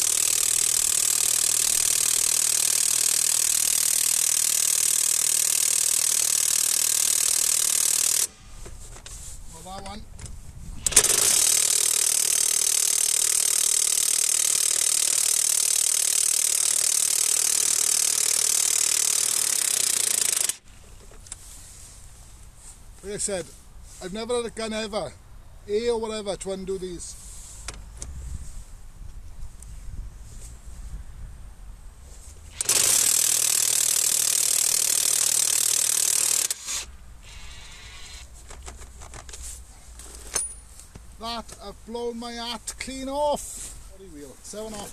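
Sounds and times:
impact wrench hammering: 0.0 - 8.4, 10.9 - 20.6, 32.6 - 36.8.

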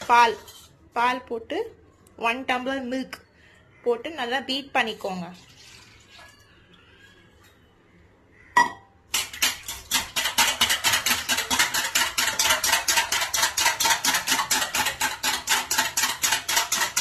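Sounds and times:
whisk clinking on steel bowl: 9.6 - 17.0.

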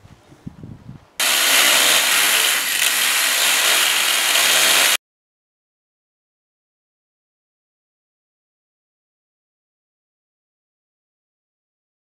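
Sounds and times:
chainsaw cutting wood: 1.2 - 5.0.

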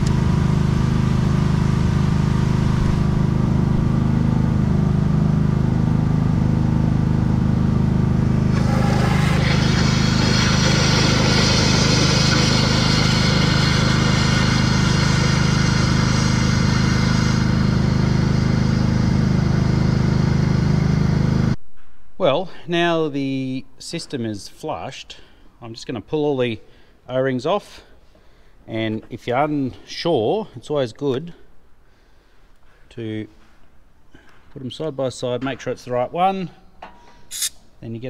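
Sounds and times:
machine humming: 0.0 - 21.9
compressed air hissing: 8.5 - 18.0, 37.3 - 37.7.

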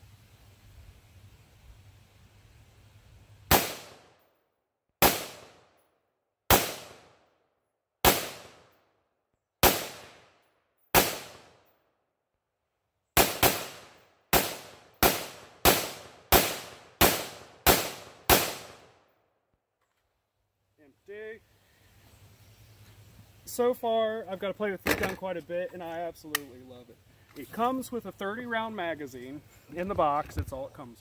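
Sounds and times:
rifle shots with echo: 3.5 - 4.2, 5.0 - 5.8, 6.5 - 7.3, 8.0 - 8.8, 9.6 - 11.7, 13.2 - 19.0.

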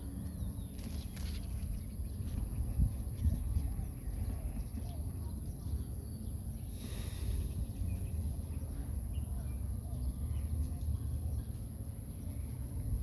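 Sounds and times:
steady low rumble: 0.0 - 13.0
bamboo leaves rustling: 0.7 - 2.3
high-pitched insect hum: 5.6 - 10.6.

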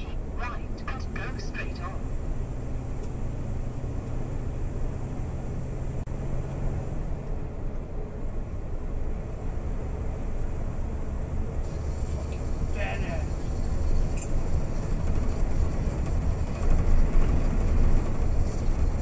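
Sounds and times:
lorry engine drone: 0.0 - 19.0
low hum: 0.0 - 19.0
road noise: 0.0 - 19.0.

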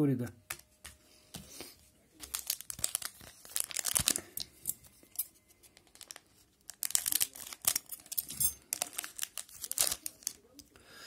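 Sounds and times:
foil wrapper tearing and crinkling: 2.2 - 4.8, 5.8 - 10.6.

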